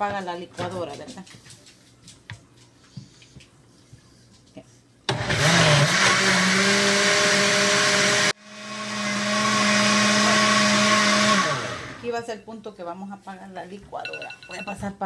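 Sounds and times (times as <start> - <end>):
blender blending: 5.1 - 12.1.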